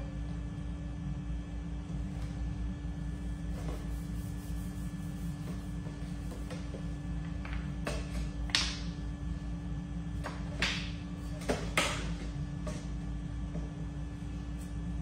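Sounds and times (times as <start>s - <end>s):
low room hum: 0.0s - 15.0s
brush scrubbing hard floor: 3.1s - 6.9s.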